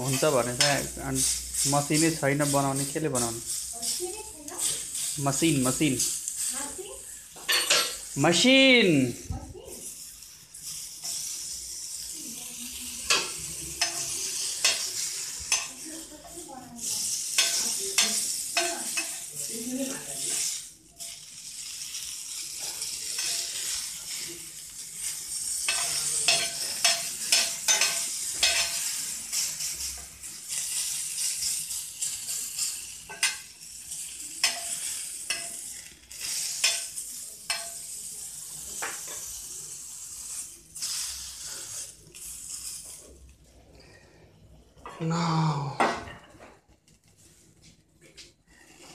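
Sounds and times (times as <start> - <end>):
skewers sizzling in a frying pan: 0.0 - 48.9
utensil clicking against pan: 13.0 - 15.8, 17.2 - 19.2, 25.6 - 29.4, 30.8 - 38.0.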